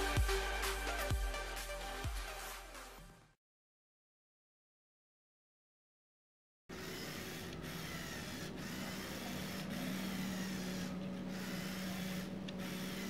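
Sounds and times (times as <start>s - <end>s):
electric motor and gears whirring: 6.7s - 13.0s.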